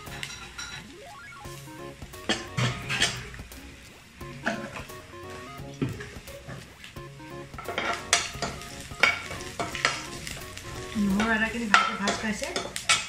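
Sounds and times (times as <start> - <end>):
spices sizzling in oil: 0.0 - 13.0
spatula scraping and knocking pan: 2.0 - 5.0, 7.5 - 13.0.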